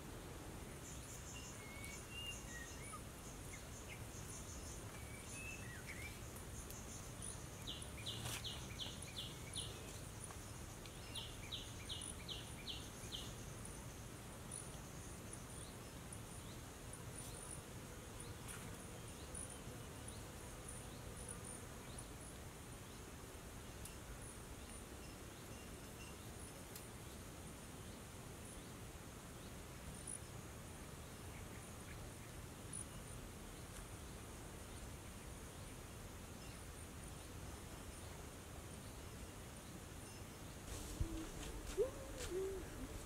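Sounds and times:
soft hiss: 0.0 - 43.0
insects chirping: 0.8 - 17.9, 38.8 - 43.0.

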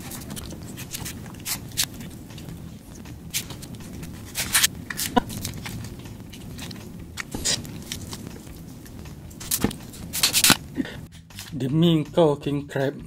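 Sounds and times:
scissors snipping crab shell: 9.4 - 10.6.

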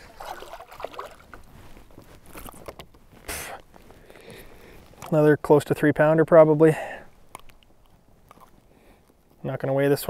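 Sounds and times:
fish splashing at surface: 0.0 - 1.4.

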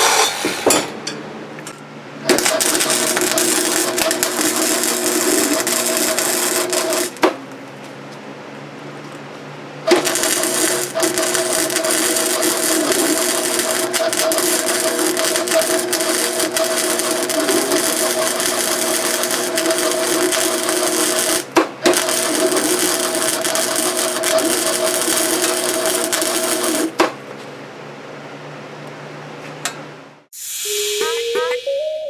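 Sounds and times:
welding arc crackling sizzle: 2.2 - 7.3, 9.8 - 27.0.

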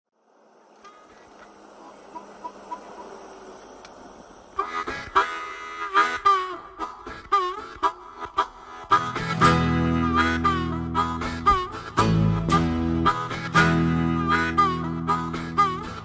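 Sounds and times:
harmonica playing with bends: 4.6 - 16.0.

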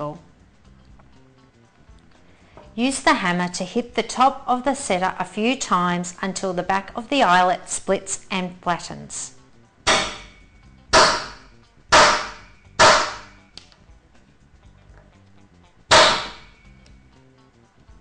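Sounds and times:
hammer striking metal eyelet setter: 9.9 - 13.4, 15.9 - 16.8.

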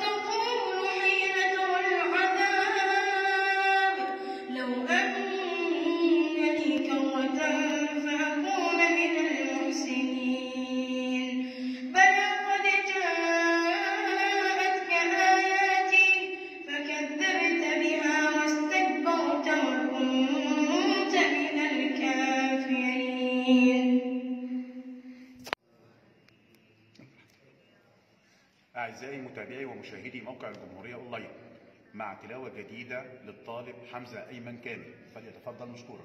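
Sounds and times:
boy reciting melodically: 0.0 - 25.1.

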